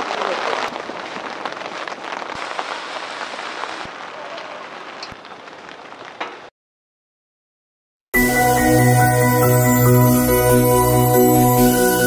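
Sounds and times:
rain-like hiss: 0.0 - 6.5.

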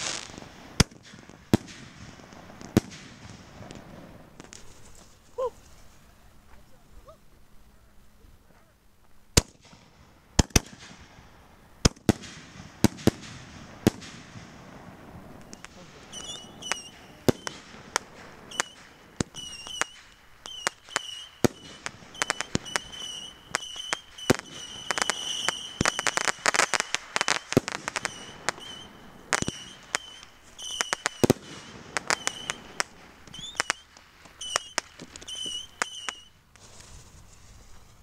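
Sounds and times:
firework whistles: 0.0 - 3.8, 15.3 - 37.7
fireworks bangs and pops: 0.0 - 5.9, 9.4 - 11.2, 11.8 - 38.0
firework crackling: 0.0 - 6.1, 9.3 - 38.0.

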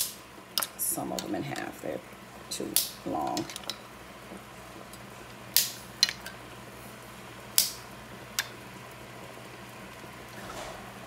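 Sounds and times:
dry pasta snapping: 7.6 - 7.8.

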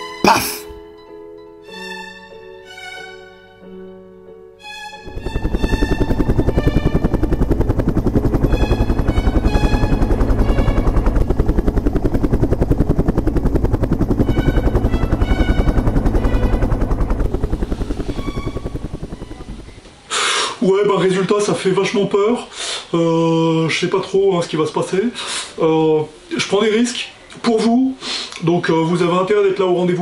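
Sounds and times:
music with violin: 0.0 - 7.1, 14.3 - 19.8
helicopter rotor beating: 5.0 - 19.9.

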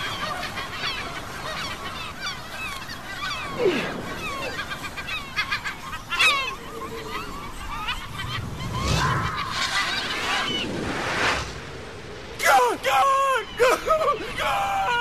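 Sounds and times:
flock of birds calling: 0.0 - 11.3, 12.2 - 15.0.

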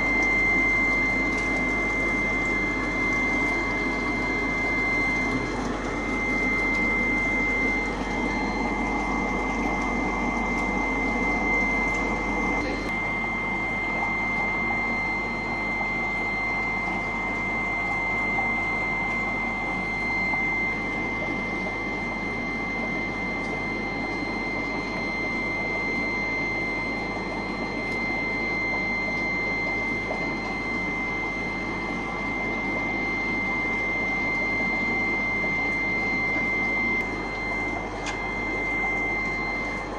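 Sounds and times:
machine hum and hiss: 0.0 - 39.9
thin high whine: 0.0 - 39.9.

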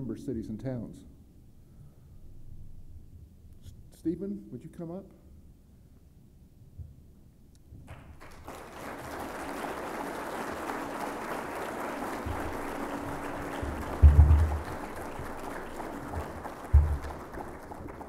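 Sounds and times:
audience applauding: 7.9 - 18.0
dull low thump: 14.0 - 14.7, 16.7 - 17.1.

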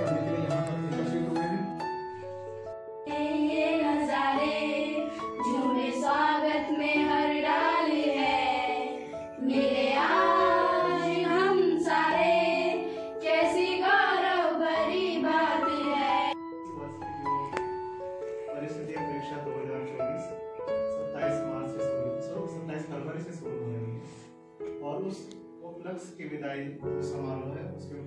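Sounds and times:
instrumental accompaniment: 0.0 - 28.0
girls singing in unison: 3.1 - 16.4.

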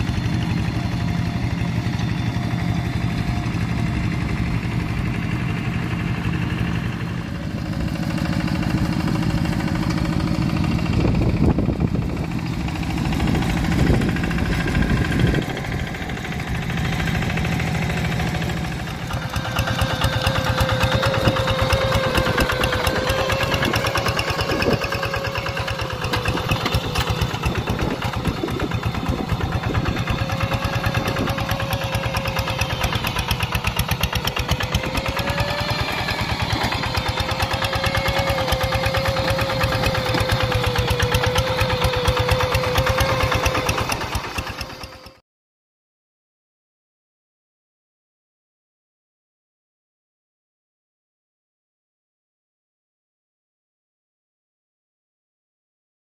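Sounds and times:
diesel engine running: 0.0 - 45.2
engine whine: 0.0 - 45.2.

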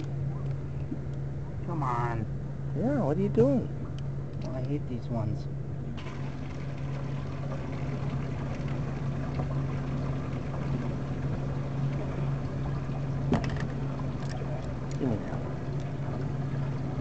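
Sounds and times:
boat motor running: 5.7 - 17.0
water washing: 6.0 - 17.0.

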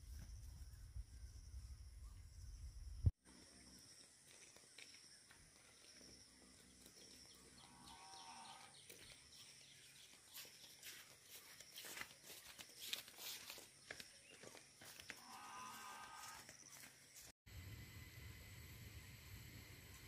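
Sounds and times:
footsteps crunching on stony track: 4.0 - 17.4
animal bleat: 15.2 - 16.4.

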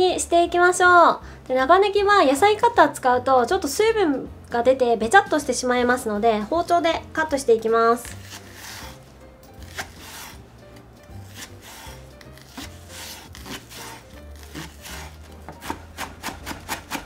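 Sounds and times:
knife chopping on wooden board: 8.0 - 9.0, 9.6 - 10.4, 11.1 - 17.0.

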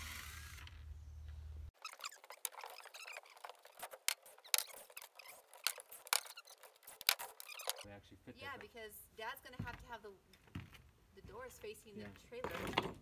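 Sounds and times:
light clicks and squeaks: 1.2 - 7.9.

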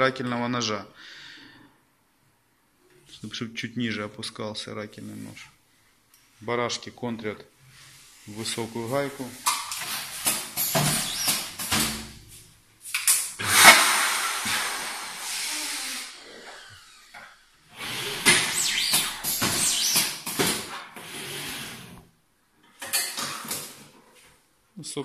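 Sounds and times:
compressed air hiss: 13.4 - 20.3.

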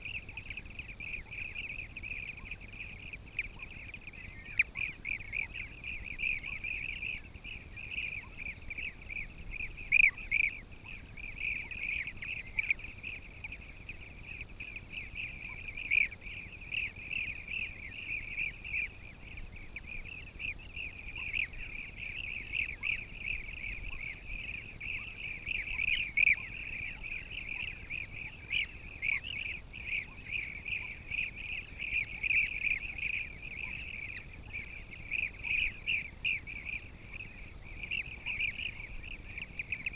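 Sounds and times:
chorus of high bird calls: 0.0 - 39.9.

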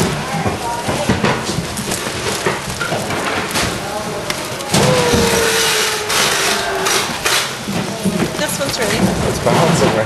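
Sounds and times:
food bags rustling and clattering: 0.0 - 10.0
many people talking: 0.0 - 10.0.

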